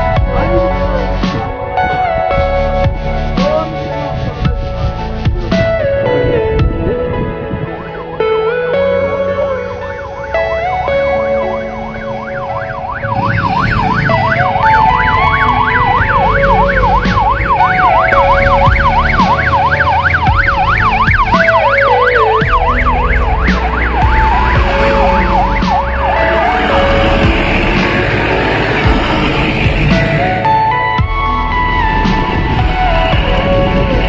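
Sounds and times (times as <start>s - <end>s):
background music: 0.0s - 34.0s
ambulance siren yelping: 7.6s - 34.0s
vehicle engines running: 10.2s - 34.0s.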